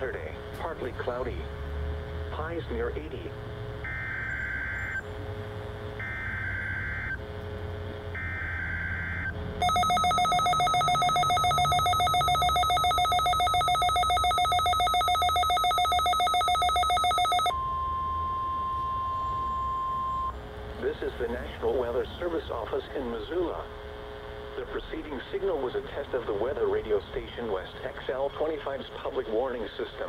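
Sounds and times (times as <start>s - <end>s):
buzzy digital data tones: 0.0s - 30.0s
rapidly pulsing alarm beep: 3.8s - 5.1s, 5.9s - 7.3s, 8.1s - 20.4s
steady single tone: 8.1s - 20.4s.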